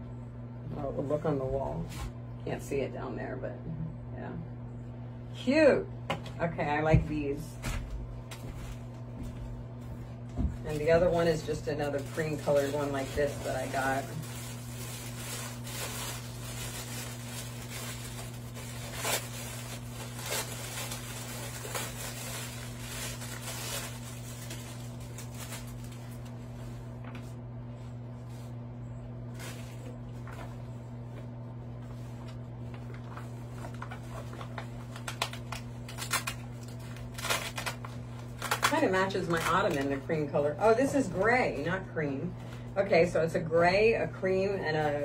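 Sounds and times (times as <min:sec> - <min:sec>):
low electrical hum: 0:00.0 - 0:45.0
wrapping rustling and crinkling: 0:08.3 - 0:28.6, 0:29.2 - 0:41.8.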